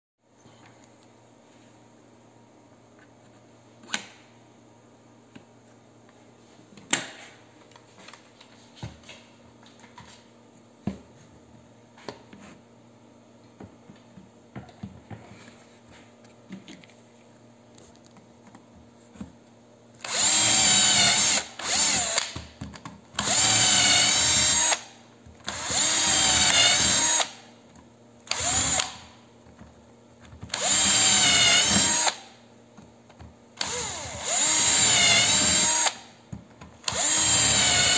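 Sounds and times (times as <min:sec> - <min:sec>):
cordless drill whine: 0:20.0 - 0:22.3, 0:23.2 - 0:24.8, 0:25.5 - 0:27.4, 0:28.3 - 0:29.0, 0:30.5 - 0:32.2, 0:33.6 - 0:36.0, 0:36.8 - 0:37.9.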